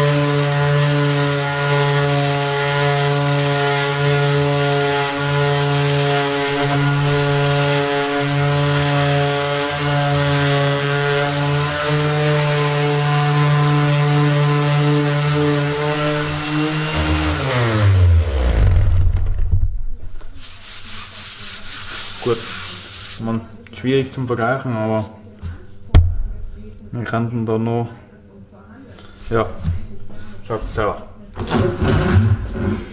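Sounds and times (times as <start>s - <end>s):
orbital sander running on wood: 0.0s - 19.4s
hand brushing dust off board: 20.3s - 23.4s.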